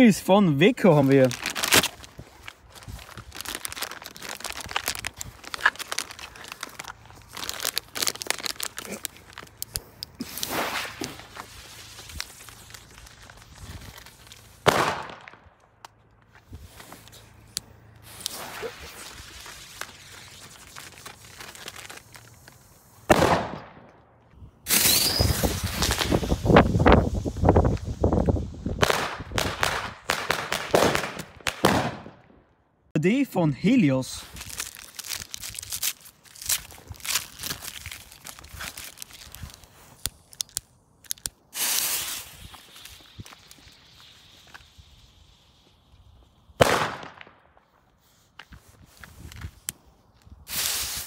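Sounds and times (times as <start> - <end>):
plastic wrapping crinkling and tearing: 0.6 - 14.6, 16.7 - 22.9, 34.2 - 45.4
firecracker bang echoing: 14.6 - 15.4, 23.1 - 23.8.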